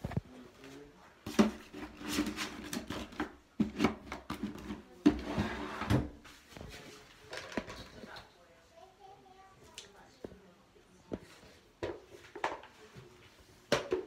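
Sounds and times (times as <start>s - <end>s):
rubbing and rustling: 0.0s - 8.2s.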